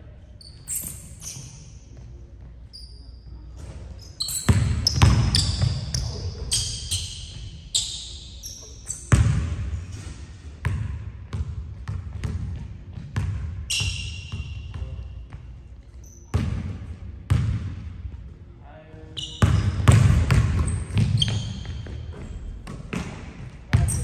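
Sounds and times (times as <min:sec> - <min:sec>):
sneakers squeaking on court: 0:00.4 - 0:17.6, 0:19.1 - 0:24.0
basketball bouncing on hardwood: 0:19.4 - 0:23.9.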